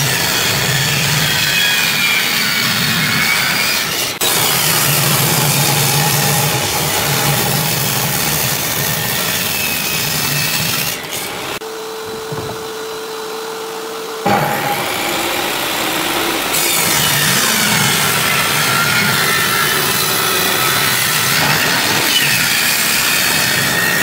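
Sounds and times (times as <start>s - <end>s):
saw motor hum: 0.0s - 24.0s
table saw cutting wood: 0.0s - 24.0s.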